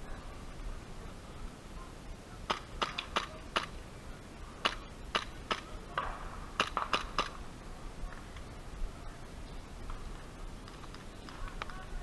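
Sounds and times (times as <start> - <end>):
airsoft gun pops: 4.6 - 7.4.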